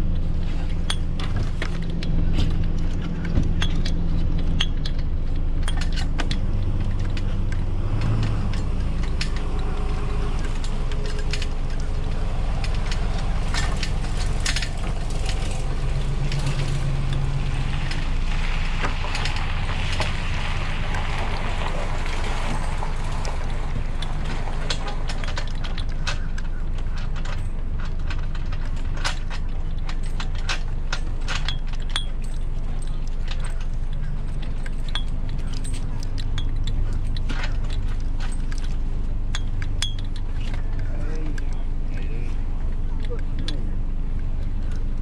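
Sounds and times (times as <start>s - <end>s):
metallic clicks of rigging hardware: 0.0s - 45.0s
vehicle engine idling: 0.0s - 45.0s.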